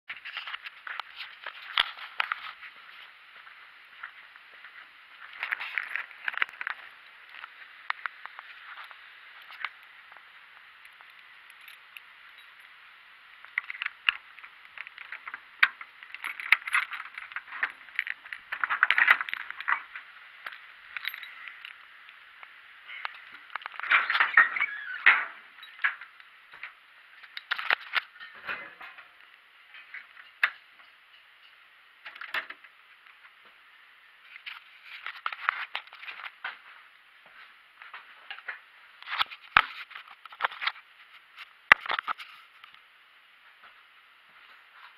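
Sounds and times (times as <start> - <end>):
rustling and clinks of handling: 4.0 - 12.8, 13.4 - 22.0, 22.9 - 32.4, 34.3 - 36.8
keys jangling: 16.0 - 19.9.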